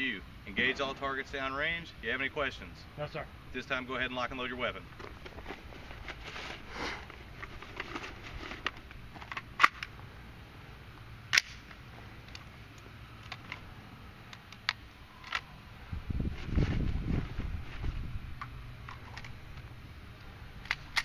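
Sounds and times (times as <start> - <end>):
rifle loading clicks and clacks: 8.6 - 9.9, 20.6 - 21.0.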